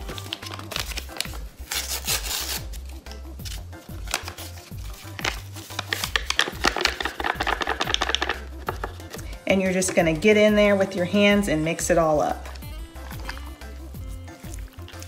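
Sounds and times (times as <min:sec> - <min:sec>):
seasoning packet tearing: 0:00.1 - 0:08.8
music with bass beat: 0:02.6 - 0:09.4, 0:11.5 - 0:15.0
powder shaken with papery rustling: 0:03.9 - 0:09.3.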